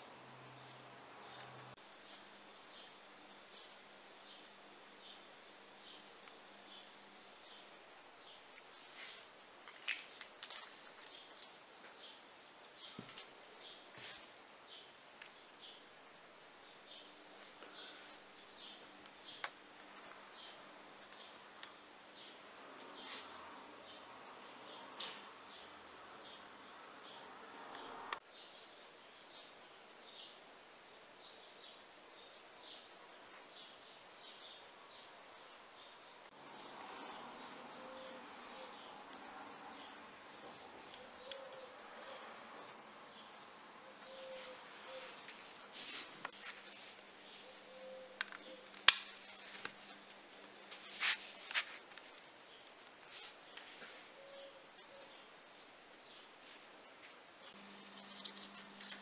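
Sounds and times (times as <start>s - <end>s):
bird chirping: 33.5s - 50.3s, 51.4s - 59.0s
fingers rustling on paper: 44.2s - 54.1s, 56.4s - 59.0s.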